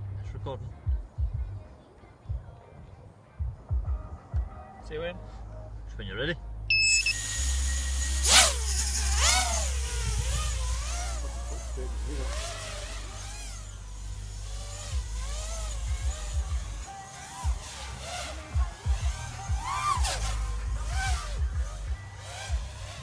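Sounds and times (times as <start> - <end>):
quadcopter motor whine: 6.7 - 23.0.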